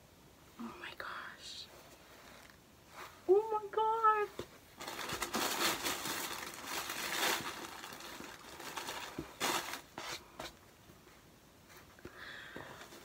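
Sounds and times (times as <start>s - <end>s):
packaging crinkling and rustling: 4.7s - 10.2s.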